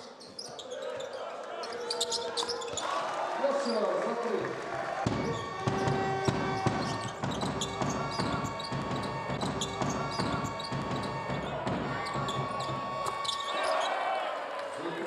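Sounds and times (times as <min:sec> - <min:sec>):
sneakers squeaking on floor: 0:00.0 - 0:02.9, 0:05.0 - 0:14.0
basketball bouncing on hardwood: 0:05.0 - 0:13.4.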